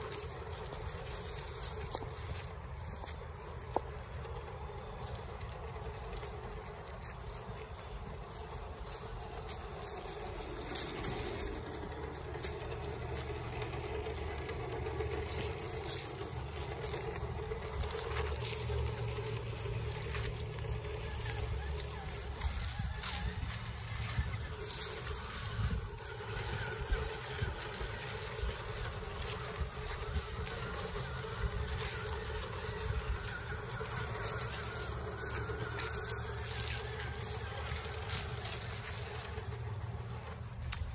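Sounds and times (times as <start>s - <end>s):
electric motor and gears whirring: 0.0s - 40.9s
tyres crunching on gravel: 0.0s - 40.9s.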